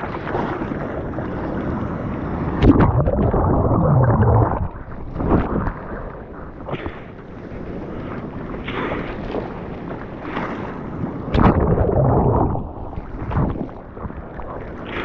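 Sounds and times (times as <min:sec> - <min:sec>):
water churning and gurgling underwater: 0:00.0 - 0:15.0
wave crashing: 0:02.4 - 0:05.6, 0:11.2 - 0:13.9.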